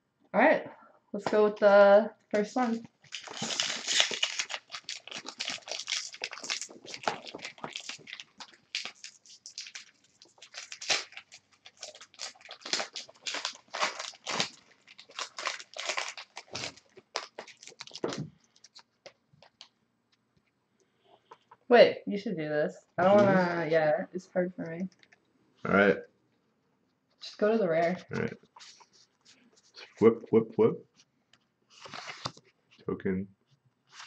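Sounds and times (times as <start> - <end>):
plastic wrapper crinkling: 2.6 - 19.7, 31.7 - 32.5.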